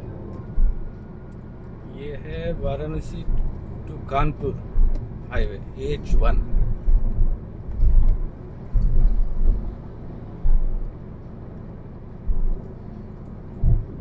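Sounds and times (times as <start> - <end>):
low thumps: 0.0 - 1.0, 3.2 - 9.8, 10.4 - 11.0, 12.2 - 12.6, 13.6 - 14.0
tyre and road rumble: 0.0 - 14.0.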